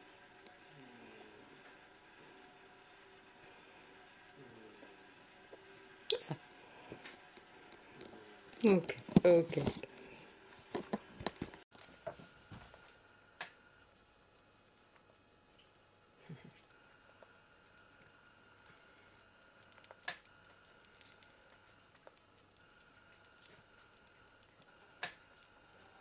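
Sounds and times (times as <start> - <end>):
squirrel mouth clicks and smacks: 12.6 - 25.6.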